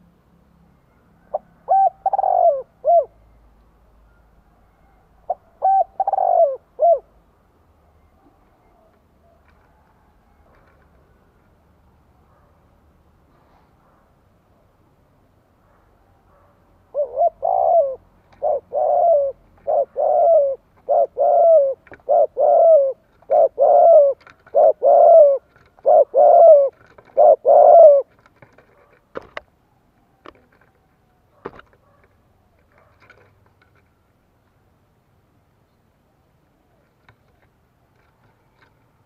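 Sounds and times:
dove cooing: 1.2 - 3.4, 4.1 - 7.2, 16.3 - 29.4.

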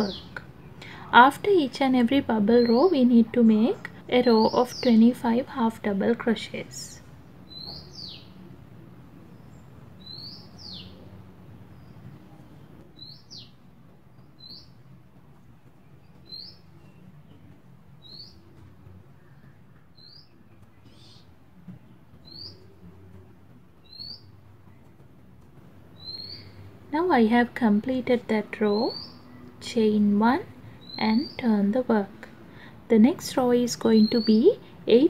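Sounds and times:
low steady background noise: 0.0 - 35.0
small bird chirping: 7.4 - 8.4, 9.2 - 12.2, 12.8 - 21.4, 22.1 - 25.0, 25.8 - 26.8, 28.5 - 29.6, 30.5 - 31.6, 33.8 - 34.7.

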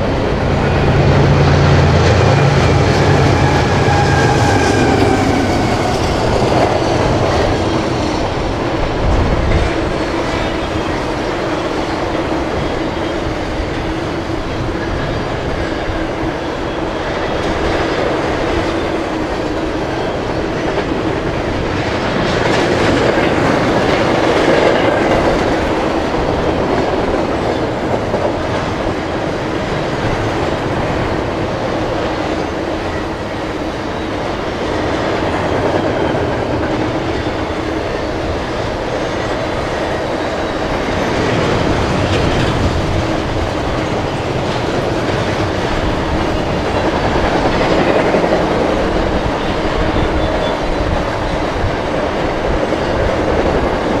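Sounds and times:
steel wheels running on rails: 0.0 - 54.0.

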